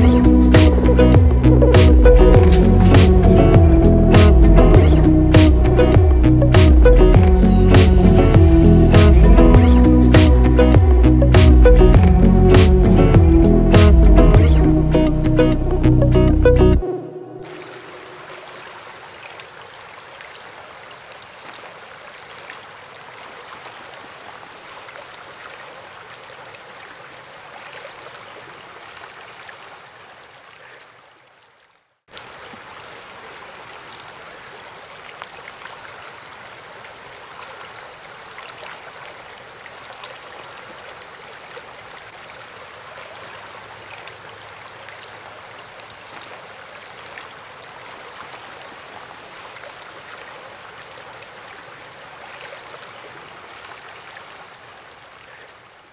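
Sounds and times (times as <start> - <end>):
creek rippling over rocks: 17.4 - 55.9.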